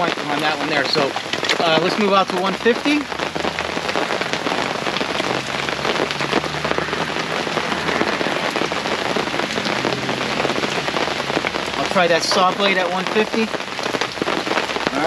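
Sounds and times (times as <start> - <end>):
person speaking: 0.0 - 3.1, 11.8 - 13.6
heavy rain on a fabric tent: 0.0 - 15.0.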